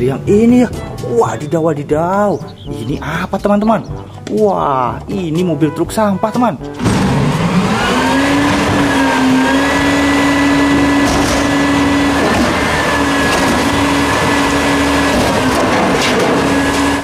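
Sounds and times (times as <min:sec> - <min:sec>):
garbage truck engine revving: 0:06.6 - 0:17.0
hydraulic hum: 0:06.7 - 0:17.0.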